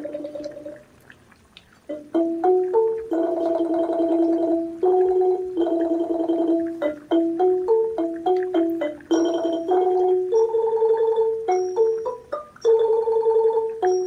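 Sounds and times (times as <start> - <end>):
simple background melody: 1.9 - 14.0.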